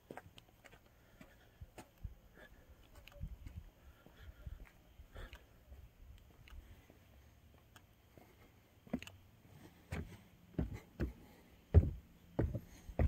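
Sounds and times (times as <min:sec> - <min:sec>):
footsteps on wooden boards: 0:09.9 - 0:13.0.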